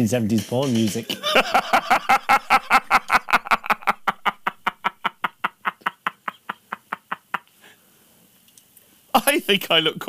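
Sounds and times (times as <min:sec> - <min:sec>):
man laughing hard: 0:01.1 - 0:07.5.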